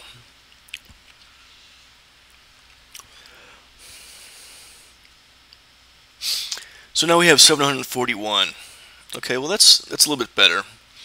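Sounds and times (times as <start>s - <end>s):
faint microphone hiss: 0.0s - 11.0s
breath at microphone: 3.1s - 5.0s.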